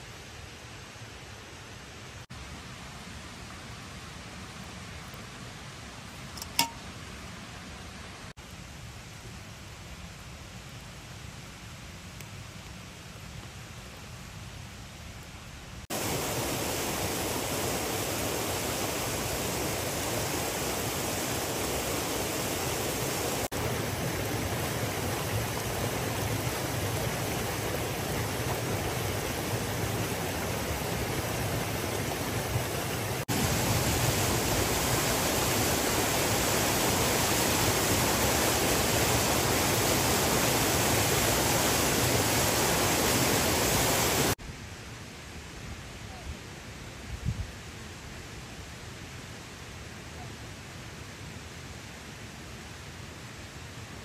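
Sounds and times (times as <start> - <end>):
stream rushing over stones: 15.9 - 44.4.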